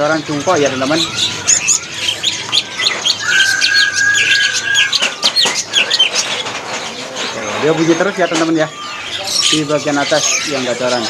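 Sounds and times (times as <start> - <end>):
bird chirps and whistles: 0.9 - 6.3.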